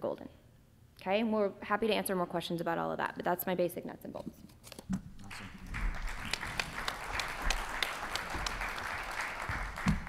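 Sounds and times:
audience applauding: 0:05.2 - 0:10.0.

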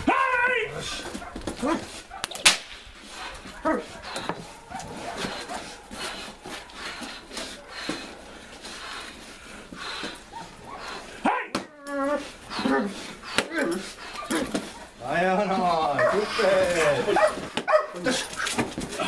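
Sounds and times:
padding scuffling and rustling: 0:00.8 - 0:10.7, 0:15.8 - 0:19.0
sharp crack: 0:01.3 - 0:03.2.

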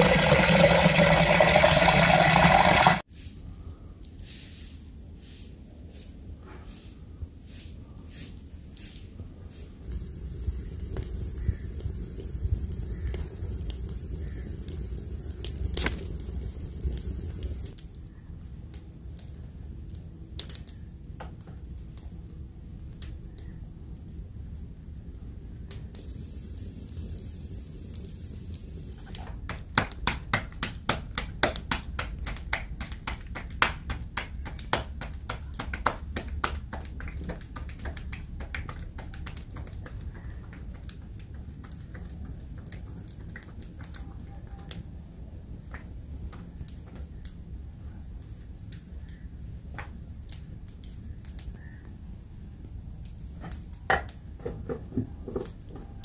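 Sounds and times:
wood fire crackling and popping: 0:00.0 - 0:03.1, 0:09.5 - 0:56.0
low rumble: 0:09.7 - 0:18.7
dough slapped between palms: 0:29.4 - 0:41.1.

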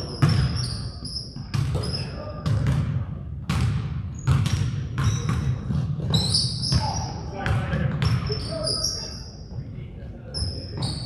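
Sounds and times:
basketball bouncing on hardwood: 0:03.5 - 0:08.2.

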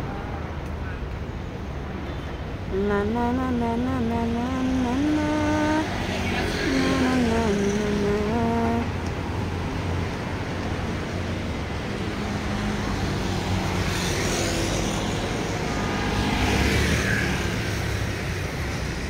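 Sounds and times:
street traffic hum: 0:00.0 - 0:19.0
vehicle passing close: 0:04.8 - 0:19.0.

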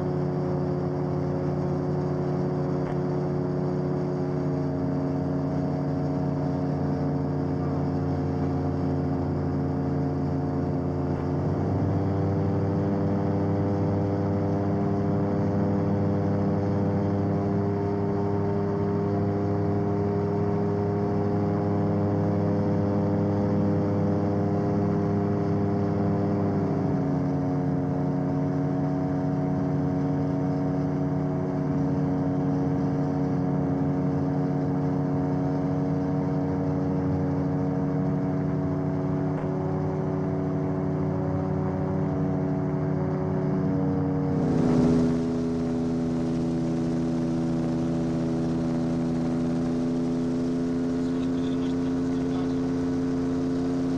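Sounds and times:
gyroplane engine in cabin: 0:00.0 - 0:53.9.

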